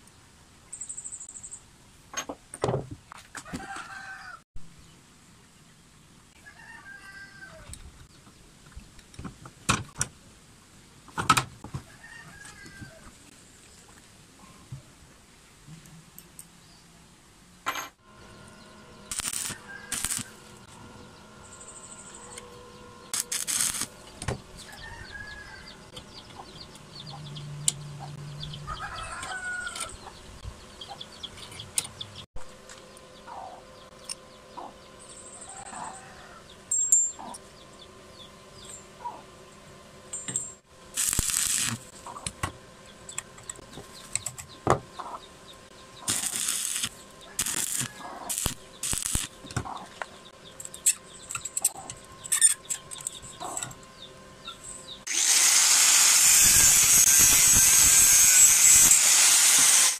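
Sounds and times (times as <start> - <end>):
rooster crowing: 3.4 - 4.4, 6.4 - 7.7, 11.8 - 13.1, 19.2 - 20.5, 24.6 - 25.9, 28.6 - 30.0, 35.4 - 36.6, 47.2 - 49.0
chickens clucking: 24.6 - 32.3, 33.2 - 37.7, 39.0 - 39.4, 41.9 - 46.1, 47.1 - 48.8, 49.4 - 54.6.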